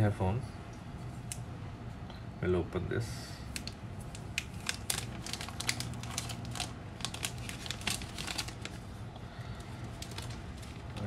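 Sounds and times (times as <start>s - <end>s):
plastic film peeling and crinkling: 3.4s - 9.0s, 9.6s - 11.0s.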